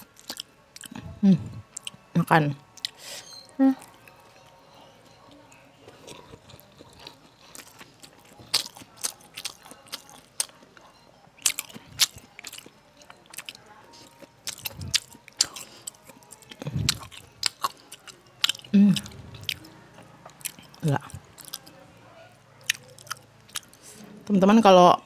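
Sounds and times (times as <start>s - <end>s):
person chewing crunchy food: 0.0s - 2.0s, 3.8s - 10.8s, 11.4s - 21.8s, 22.6s - 24.0s.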